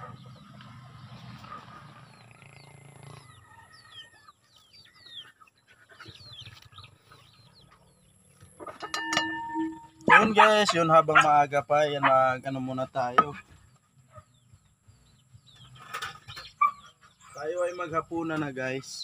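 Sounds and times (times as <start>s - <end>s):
chickens clucking: 0.0s - 12.2s, 13.1s - 19.0s
pot lid clattering: 8.7s - 10.2s.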